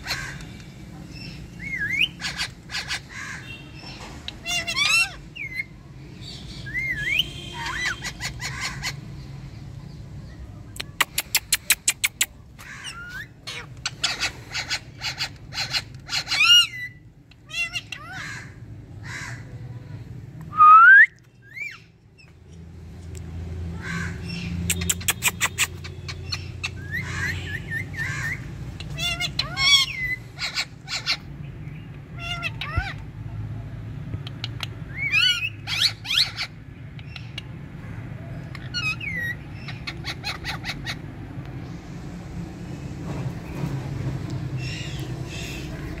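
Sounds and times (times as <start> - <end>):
parakeets calling and chattering: 0.0 - 20.2, 21.2 - 46.0
rising whistles: 20.5 - 21.2.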